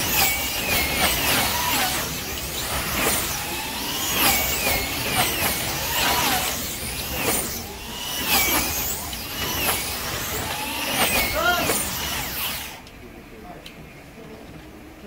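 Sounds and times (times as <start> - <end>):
slot car motors whining: 0.0 - 13.0.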